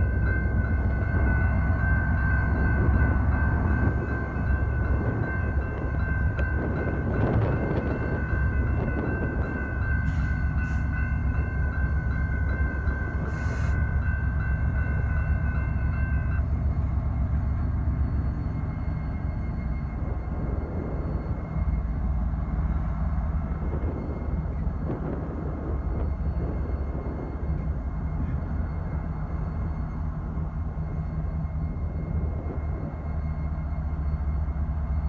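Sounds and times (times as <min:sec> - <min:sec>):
railroad crossing bell ringing: 0:00.0 - 0:35.0
train rumble: 0:00.0 - 0:35.0.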